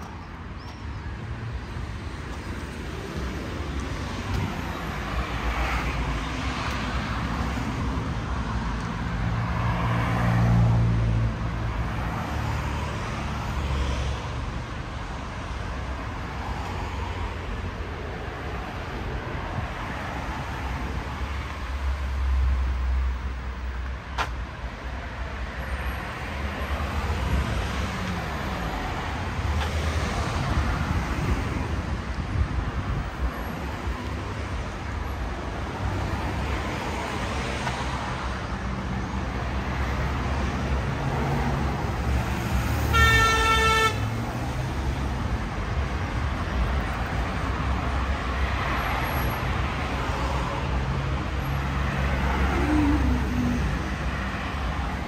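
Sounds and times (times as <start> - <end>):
road traffic passing: 0.0 - 55.0
vehicle horn: 42.8 - 44.2.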